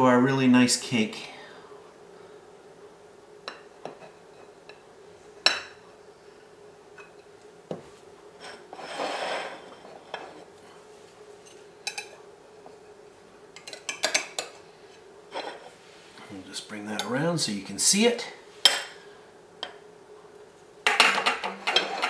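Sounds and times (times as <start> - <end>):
knife scraping plate: 8.4 - 10.5.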